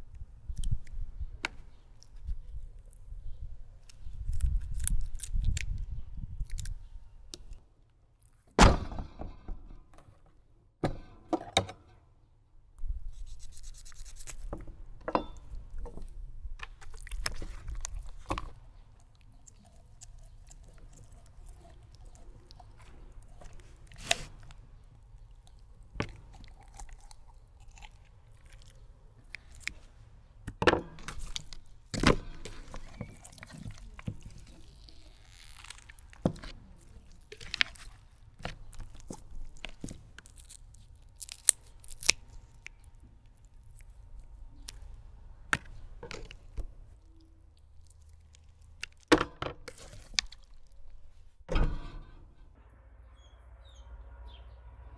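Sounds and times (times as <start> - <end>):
shears crunching through bones: 16.8 - 29.8.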